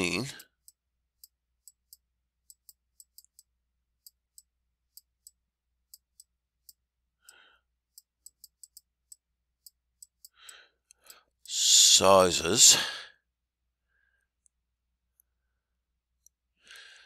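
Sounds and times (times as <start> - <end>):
soft breath: 7.2 - 7.7, 10.2 - 11.4, 13.8 - 14.4, 16.6 - 17.0.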